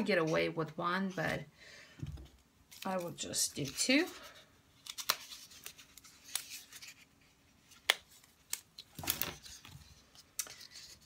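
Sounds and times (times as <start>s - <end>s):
paper rustle: 8.1s - 11.0s.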